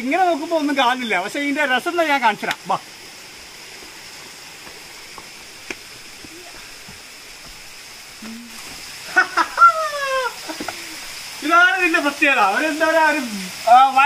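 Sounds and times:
background hiss: 0:00.0 - 0:14.0
footsteps on loose boulders: 0:03.8 - 0:09.0, 0:10.5 - 0:10.9.

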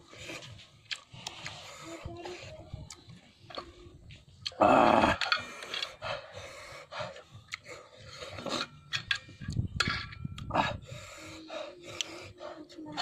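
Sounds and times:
sucking and chewing mouth sounds: 0:00.1 - 0:06.0, 0:07.1 - 0:08.7.

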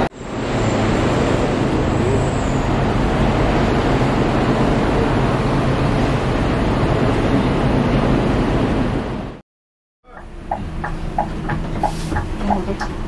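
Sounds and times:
diesel engines idling: 0:10.0 - 0:13.0.

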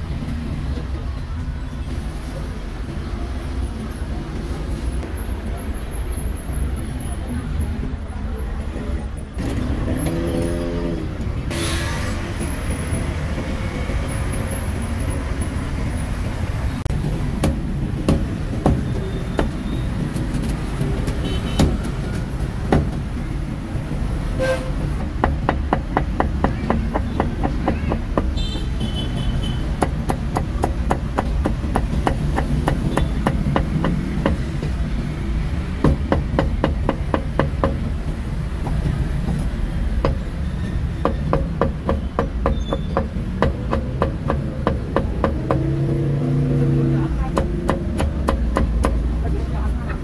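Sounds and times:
cleaver chopping on wooden block: 0:47.3 - 0:49.0.

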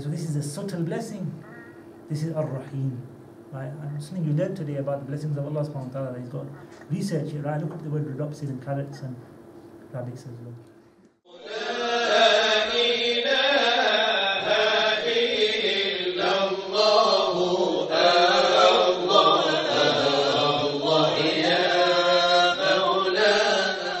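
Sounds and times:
vocal chanting: 0:11.3 - 0:24.0.

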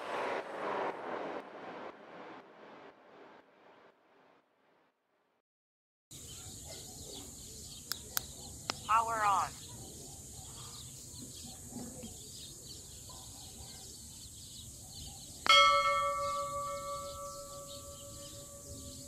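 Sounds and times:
electronic bell-like chime: 0:15.5 - 0:19.0.

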